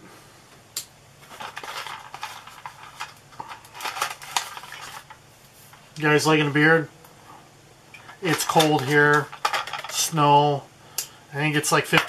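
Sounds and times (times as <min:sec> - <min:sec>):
hard plastic packaging crackling: 0:01.2 - 0:05.8, 0:08.1 - 0:10.2.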